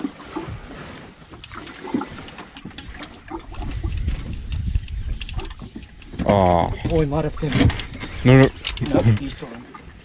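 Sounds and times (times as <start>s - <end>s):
water lapping against boat: 0.0s - 10.0s.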